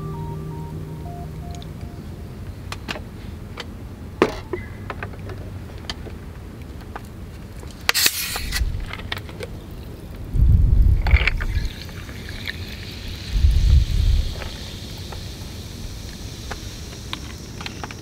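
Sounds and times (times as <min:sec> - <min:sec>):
short hiss: 0:07.9 - 0:08.8, 0:11.5 - 0:18.0
low rumble: 0:10.3 - 0:11.5.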